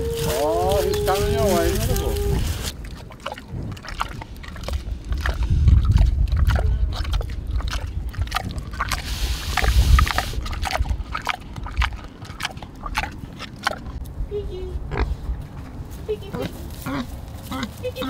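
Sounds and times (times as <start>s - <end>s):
low rumble: 0.0s - 12.0s
pig chewing and snuffling: 0.0s - 18.0s.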